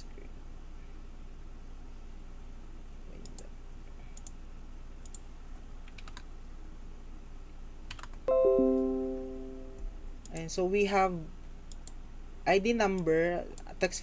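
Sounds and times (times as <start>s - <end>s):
low room hiss: 0.0s - 14.0s
computer mouse clicks: 3.2s - 3.5s, 4.1s - 4.4s, 5.0s - 6.3s, 7.9s - 8.2s, 11.6s - 12.0s
loud plucked chord: 8.3s - 9.8s.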